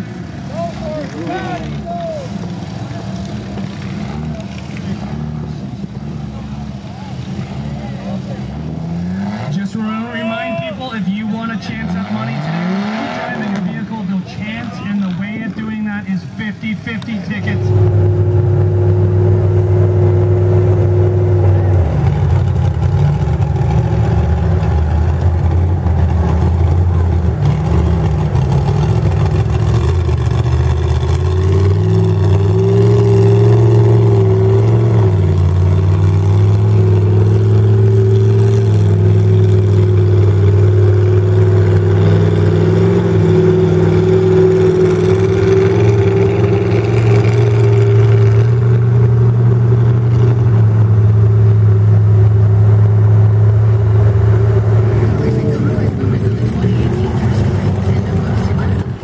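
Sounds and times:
truck engine pulling under load: 17.4s - 59.0s.

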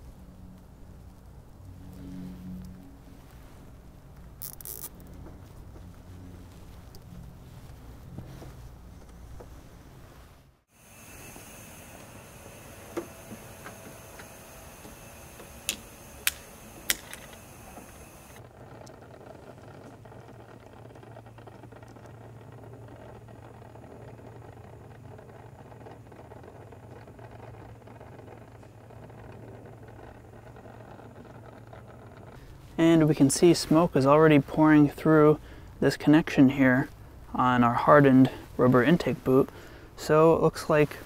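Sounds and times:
hose fittings clicking: 4.4s - 5.1s
steady hiss: 10.6s - 18.4s.

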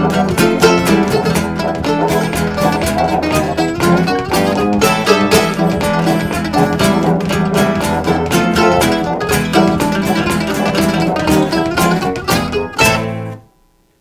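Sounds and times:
bowed cello: 0.0s - 13.4s
acoustic guitar strumming: 0.0s - 13.7s
mandolin: 0.0s - 13.8s.

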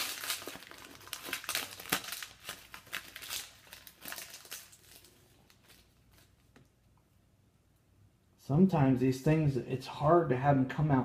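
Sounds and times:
foil wrapper crinkling: 0.0s - 6.6s.

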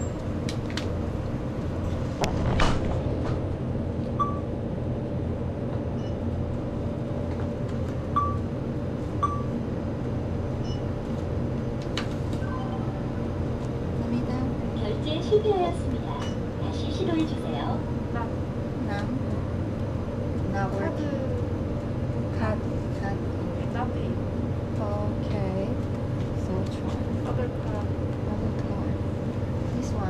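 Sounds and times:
low shop hum: 0.0s - 30.0s
short electronic beeps: 4.2s - 4.4s.

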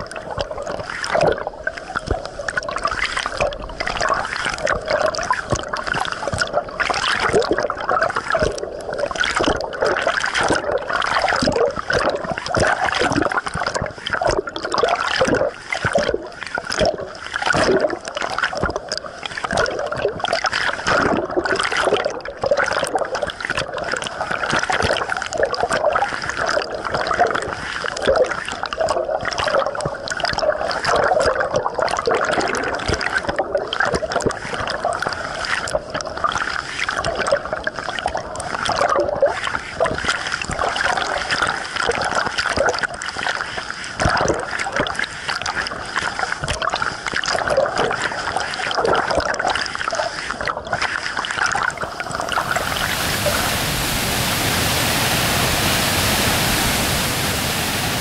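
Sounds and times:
underwater rush of bubbling water: 14.2s - 35.8s, 51.4s - 58.0s.

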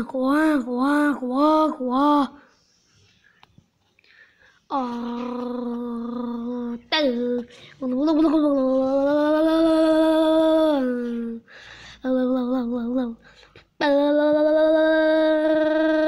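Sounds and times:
child humming: 4.7s - 11.4s, 12.0s - 13.2s, 13.8s - 16.0s.

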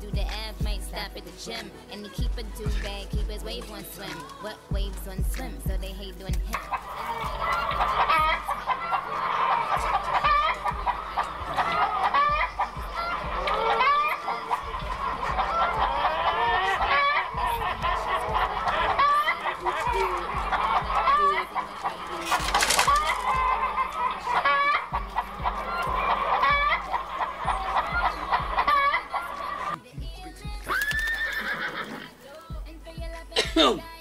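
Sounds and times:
chickens clucking: 6.3s - 29.8s.

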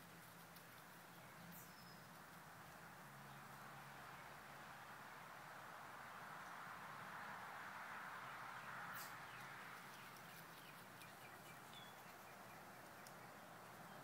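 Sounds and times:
bird chirps and ticks: 0.0s - 3.4s, 8.9s - 14.0s
steady low hiss: 0.0s - 14.0s.

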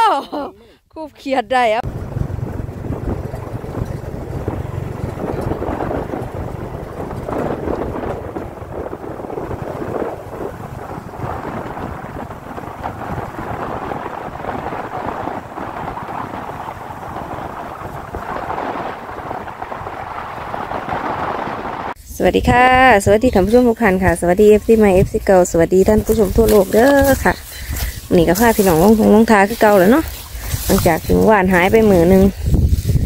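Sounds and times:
wind buffeting microphone: 1.7s - 33.0s
vehicle running on road: 1.8s - 22.0s.

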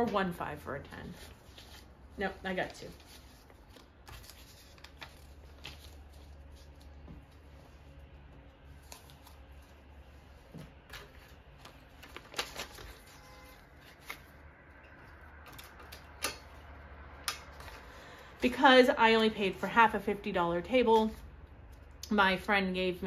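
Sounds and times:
banknotes rustling: 0.1s - 14.4s.

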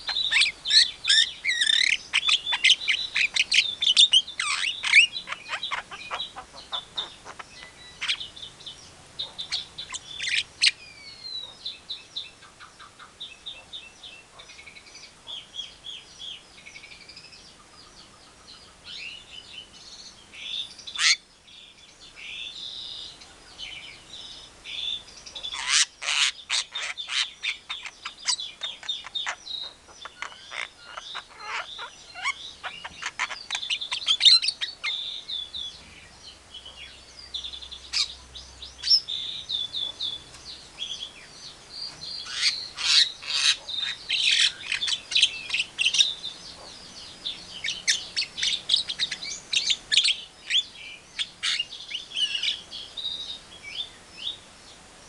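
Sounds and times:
myna chirping and whistling: 0.0s - 12.4s, 24.7s - 35.9s, 41.9s - 53.1s.

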